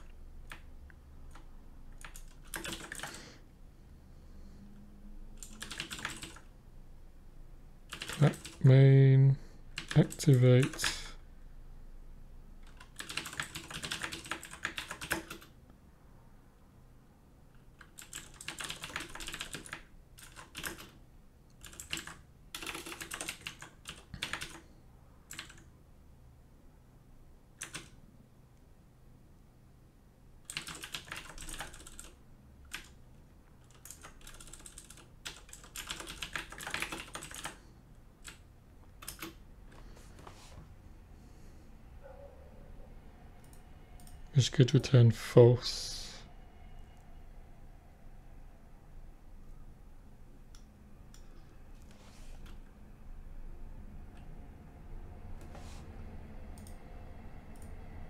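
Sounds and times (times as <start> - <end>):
typing on a keyboard: 1.3 - 3.2, 5.4 - 6.5, 7.9 - 8.6, 9.8 - 11.0, 12.6 - 15.6, 17.8 - 21.0, 21.6 - 24.6, 25.3 - 25.7, 27.6 - 28.0, 30.4 - 33.0, 33.6 - 37.6, 39.0 - 39.4.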